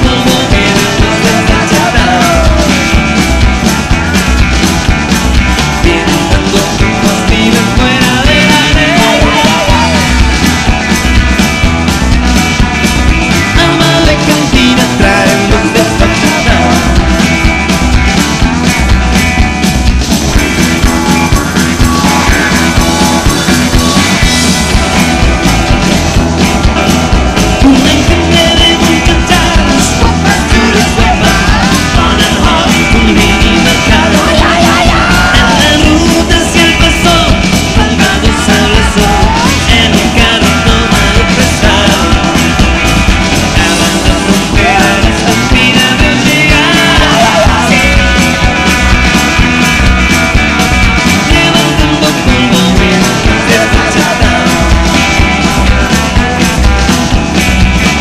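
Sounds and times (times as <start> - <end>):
man singing: 0.0 - 3.3, 5.6 - 10.7, 13.3 - 17.4, 27.4 - 48.7, 51.1 - 56.6
loud rock band music: 0.0 - 58.0.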